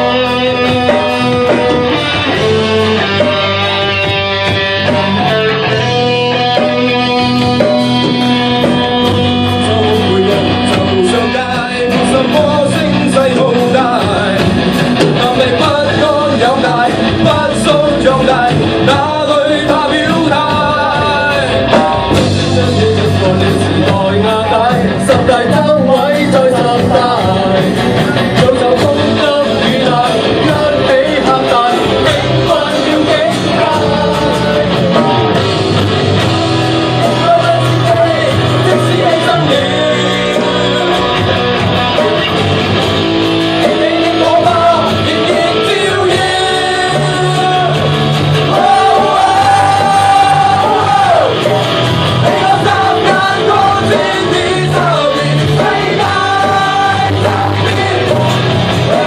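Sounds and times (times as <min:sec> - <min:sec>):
drums: 0:00.0 - 0:59.0
electric guitars: 0:00.0 - 0:59.0
man singing into a microphone: 0:08.7 - 0:35.6, 0:36.9 - 0:42.3, 0:43.6 - 0:51.5, 0:52.2 - 0:59.0
people shouting: 0:48.4 - 0:51.5.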